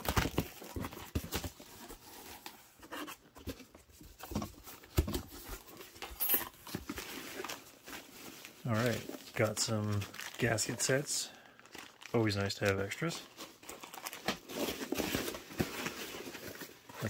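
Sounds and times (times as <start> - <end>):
packing peanuts rustling: 6.8 - 16.9
plastic wrap crinkling: 6.8 - 16.9.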